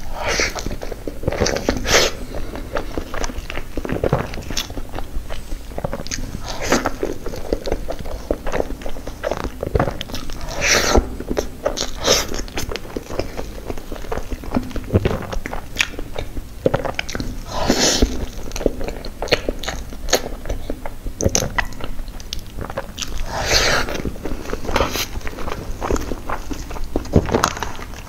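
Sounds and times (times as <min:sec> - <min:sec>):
chewing cake: 0:00.0 - 0:28.0.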